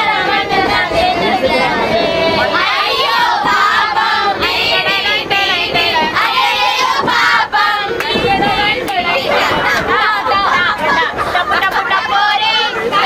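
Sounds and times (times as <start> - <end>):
group singing together: 0.0 - 13.0.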